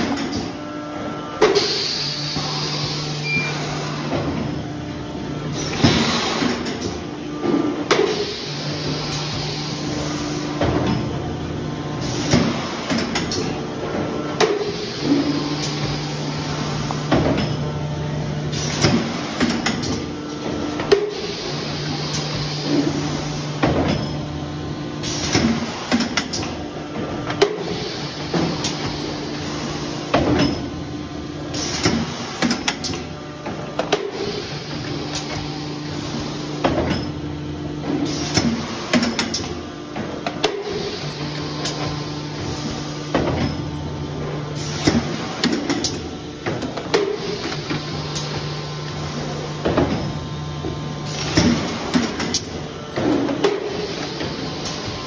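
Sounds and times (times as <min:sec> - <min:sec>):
machine motor hum: 0:00.0 - 0:55.0.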